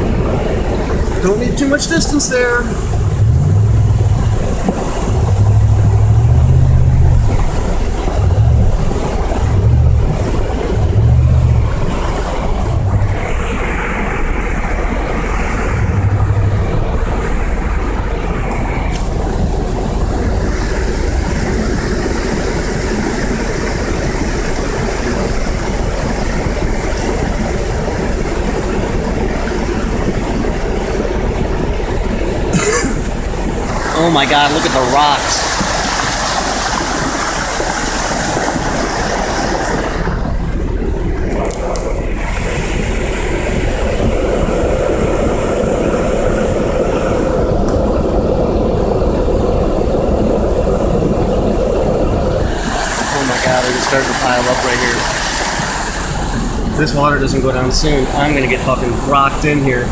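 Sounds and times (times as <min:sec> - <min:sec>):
muddy water and rocks rushing: 0:00.0 - 0:59.9
low heavy thumps: 0:02.8 - 0:33.8.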